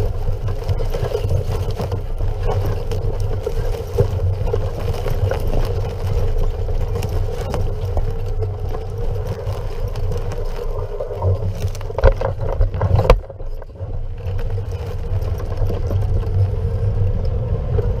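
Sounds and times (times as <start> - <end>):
knocks and rattles: 0.0 - 17.1
tyre and wind rumble: 0.0 - 18.0.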